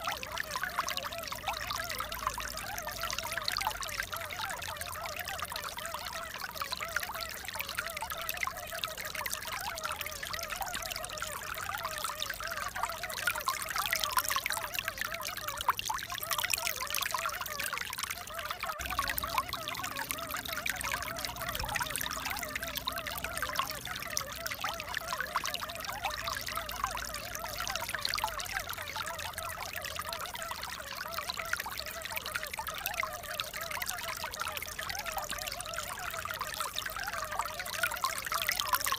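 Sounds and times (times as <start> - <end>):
running water pouring: 12.4 - 33.6.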